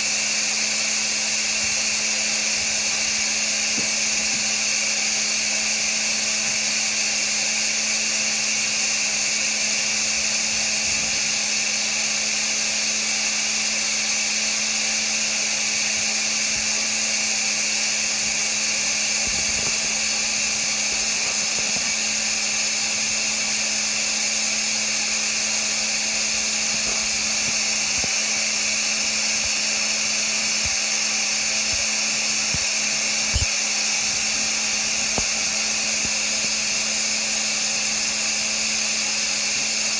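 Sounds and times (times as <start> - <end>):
cleaning machine motor running: 0.0 - 39.9.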